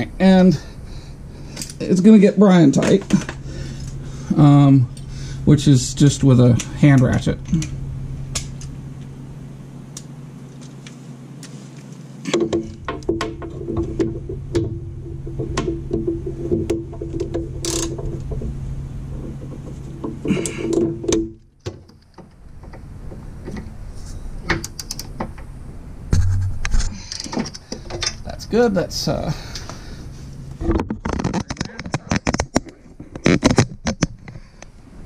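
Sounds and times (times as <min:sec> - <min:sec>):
steady low hum: 0:00.0 - 0:35.0
hand ratchet clicking: 0:16.7 - 0:18.2.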